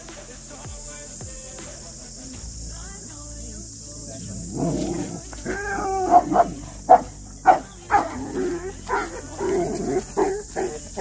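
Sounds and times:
dogs growling roughly: 4.2 - 11.0
dogs barking: 4.4 - 11.0.

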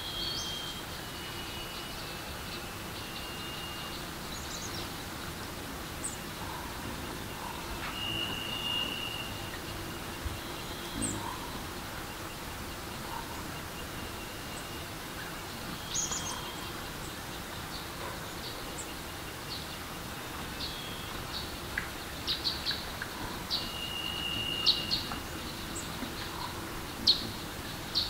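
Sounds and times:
songbirds chirping: 0.0 - 28.0
bird whistle: 7.7 - 9.6, 23.6 - 25.1.

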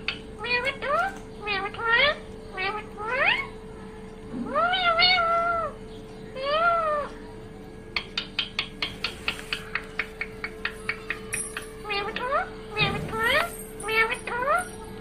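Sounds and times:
parakeet meow-like calls: 0.0 - 3.6, 4.4 - 7.2
faint steady hum: 0.0 - 15.0.

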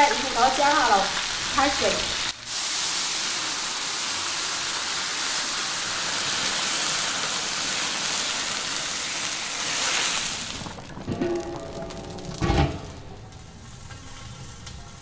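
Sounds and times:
water sizzling in hot wok: 0.0 - 15.0.

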